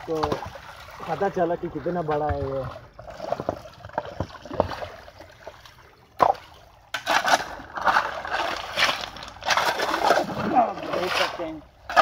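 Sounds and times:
water trickling: 0:00.0 - 0:12.0
spade knocking and scraping stones: 0:06.2 - 0:12.0
spade splashing through wet gravel: 0:06.2 - 0:12.0.

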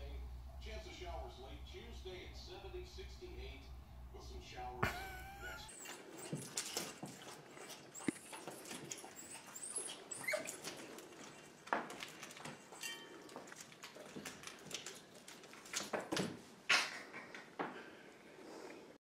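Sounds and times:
puppy whining: 0:04.8 - 0:13.1.

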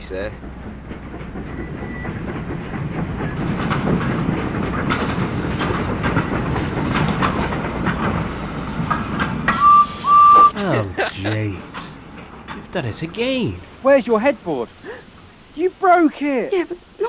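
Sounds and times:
train wheels clicking over rail joints: 0:00.0 - 0:15.5
low train rumble: 0:00.0 - 0:17.0
steam train whistle: 0:09.5 - 0:10.6.

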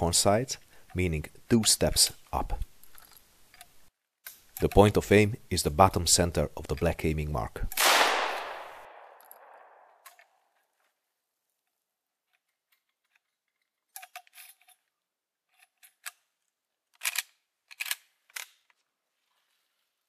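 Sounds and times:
gunshot: 0:07.8 - 0:09.9.

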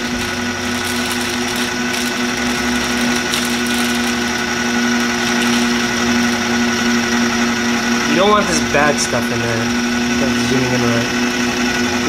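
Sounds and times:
plastic bag crinkling: 0:00.0 - 0:06.6
food processor motor whining: 0:00.0 - 0:12.0.

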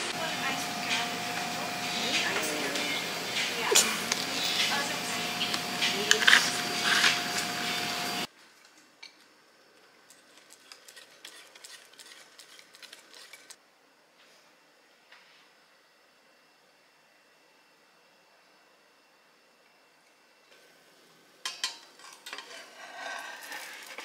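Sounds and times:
steady hum: 0:00.0 - 0:08.4
whisk scraping against bowl: 0:10.3 - 0:13.6.

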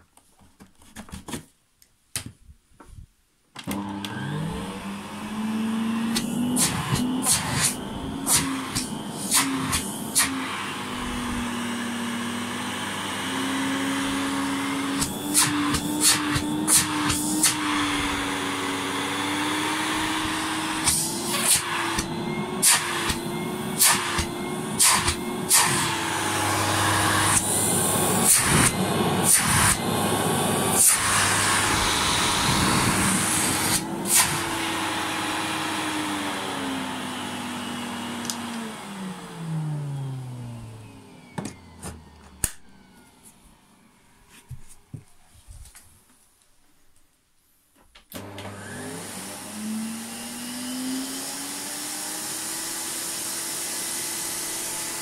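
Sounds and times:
vacuum cleaner motor whine: 0:03.6 - 0:44.2, 0:48.1 - 0:55.0.

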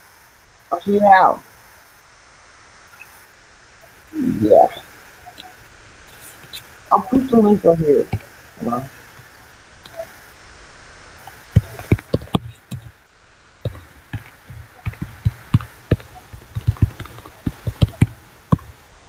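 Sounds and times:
sharp knocks and taps: 0:11.5 - 0:13.0, 0:13.7 - 0:18.7.

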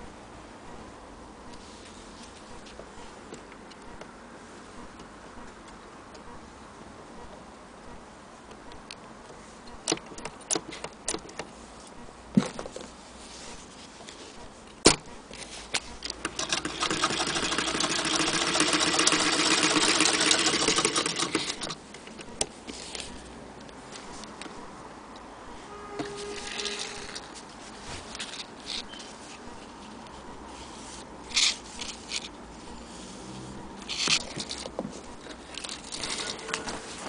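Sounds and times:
sewing machine clattering: 0:16.2 - 0:21.8.

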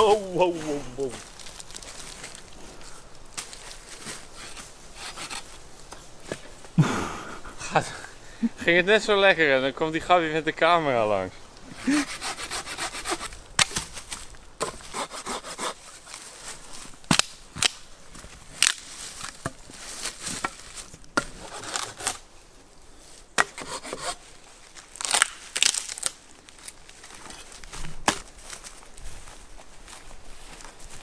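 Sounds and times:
rustling: 0:00.0 - 0:06.7, 0:11.5 - 0:22.2
branches snapping: 0:01.2 - 0:04.6, 0:13.2 - 0:14.7, 0:17.0 - 0:22.2, 0:24.8 - 0:28.7.

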